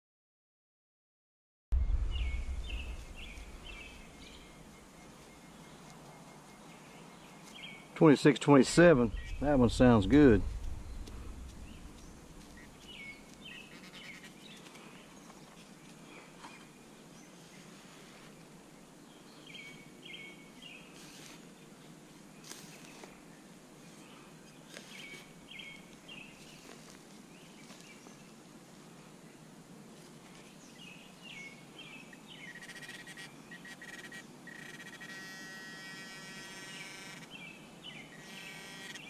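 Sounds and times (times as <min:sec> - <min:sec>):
steady buzzing tone: 0:01.8 - 0:05.2, 0:08.7 - 0:13.4, 0:32.5 - 0:37.4, 0:38.2 - 0:39.0
small birds chirping: 0:02.0 - 0:18.4, 0:19.1 - 0:28.4, 0:30.3 - 0:39.0.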